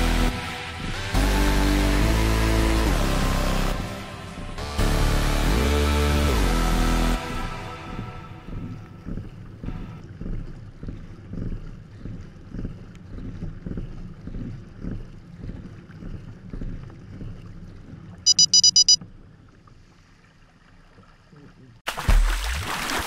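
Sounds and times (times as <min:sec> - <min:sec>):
low pulsing water noise: 0:00.0 - 0:23.0
high electronic beeps: 0:18.3 - 0:19.0.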